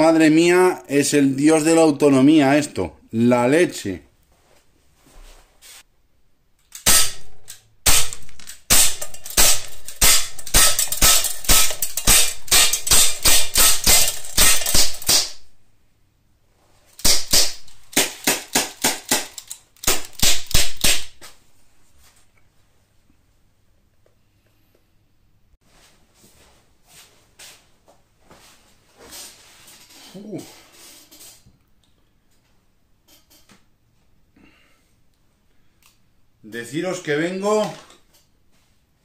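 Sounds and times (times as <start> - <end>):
metallic ring of pellet trap: 6.7 - 15.4
air pistol shots: 6.8 - 15.5, 17.0 - 21.1.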